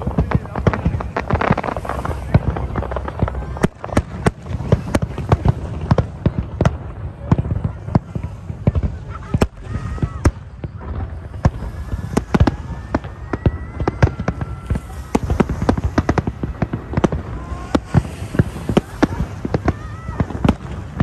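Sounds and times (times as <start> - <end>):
fireworks bursting: 0.0 - 21.0.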